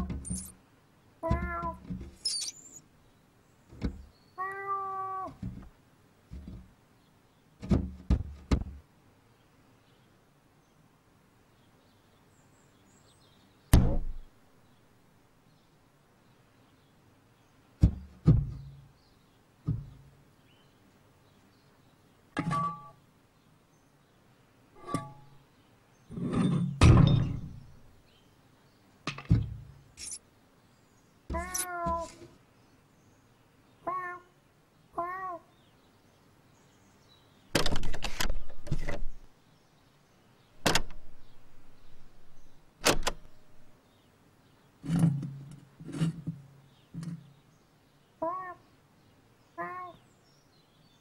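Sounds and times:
brief squeak: 0.2s - 0.5s, 2.2s - 2.8s
cartoon cat meow: 1.2s - 1.8s, 4.4s - 5.4s, 31.3s - 32.2s, 33.8s - 34.3s, 35.0s - 35.5s, 48.2s - 48.6s, 49.6s - 50.0s
dull heavy thumps on glass door: 7.6s - 8.8s, 17.8s - 18.7s, 19.6s - 20.0s
door handle rattling and clicking: 42.8s - 43.3s.

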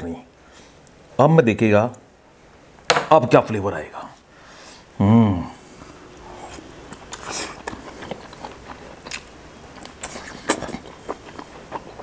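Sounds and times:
man chewing chicken: 6.1s - 12.0s.

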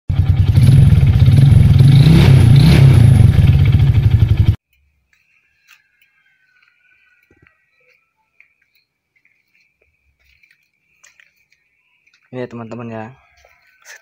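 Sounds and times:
motorcycle engine running: 0.1s - 4.6s.

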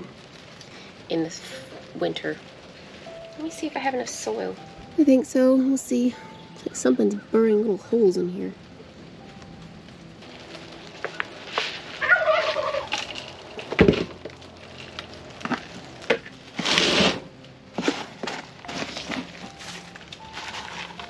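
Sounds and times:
soil and leaves rustling: 0.0s - 21.0s
warbling poultry call: 12.0s - 13.1s.

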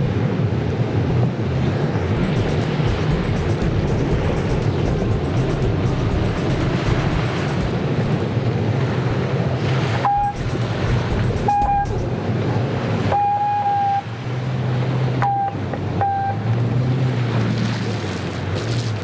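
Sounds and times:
surf: 0.0s - 19.0s
watercraft engines droning: 0.0s - 19.0s
wind: 0.0s - 19.0s
high tone blasts: 10.0s - 12.2s, 13.1s - 14.1s.

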